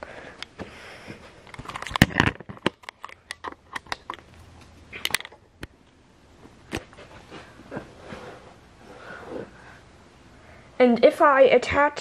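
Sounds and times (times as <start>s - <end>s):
handling clicks and knocks: 1.5s - 5.7s.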